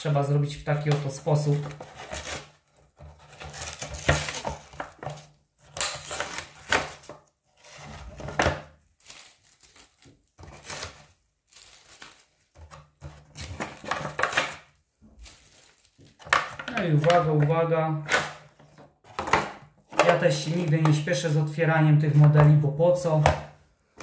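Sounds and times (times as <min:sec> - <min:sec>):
packaging rustling: 0:00.8 - 0:21.1
cardboard tearing: 0:01.4 - 0:08.4, 0:09.0 - 0:14.6.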